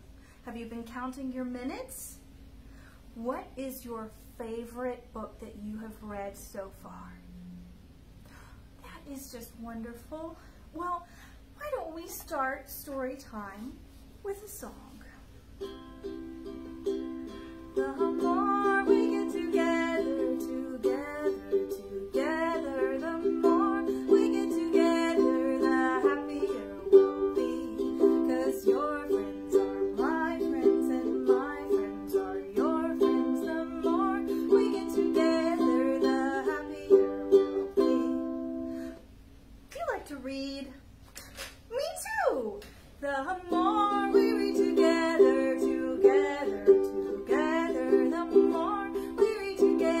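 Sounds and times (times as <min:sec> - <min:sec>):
ukulele strumming: 0:15.6 - 0:39.0, 0:43.3 - 0:50.0
woman singing: 0:17.7 - 0:38.6, 0:43.0 - 0:50.0.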